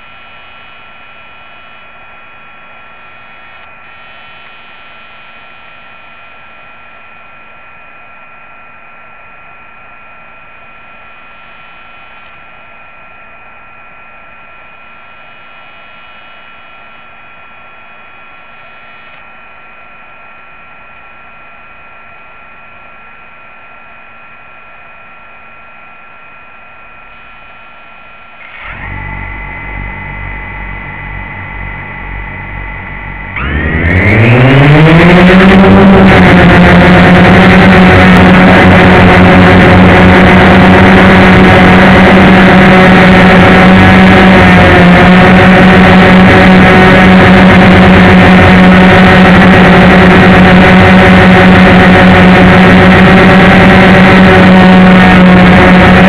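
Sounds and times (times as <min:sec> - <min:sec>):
steady electronic whine: 0:00.0 - 0:56.0
drone motors spinning: 0:28.4 - 0:56.0.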